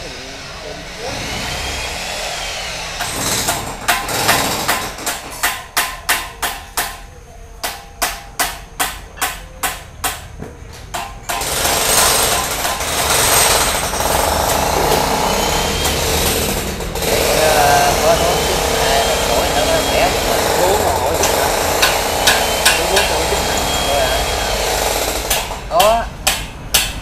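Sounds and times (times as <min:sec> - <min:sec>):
steady machine noise: 0:00.0 - 0:27.0
sharp hammer blows: 0:11.0 - 0:27.0.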